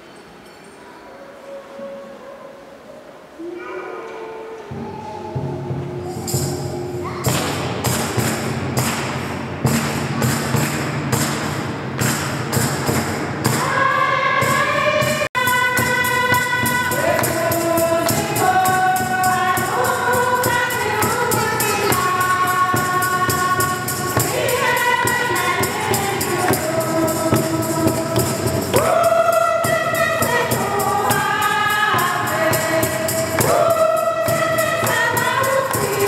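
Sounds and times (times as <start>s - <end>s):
tambourine beat: 6.0s - 36.0s
choir singing a hymn: 13.4s - 36.0s.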